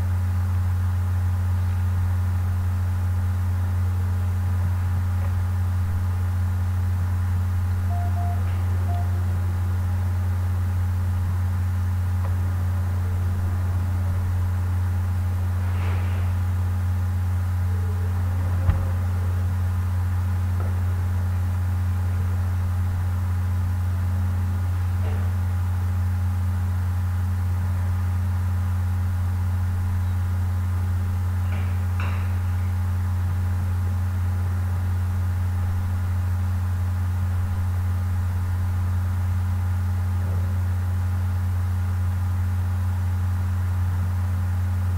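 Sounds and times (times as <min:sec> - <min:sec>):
steady low hum: 0:00.0 - 0:44.9
faint high steady tones: 0:07.8 - 0:10.2.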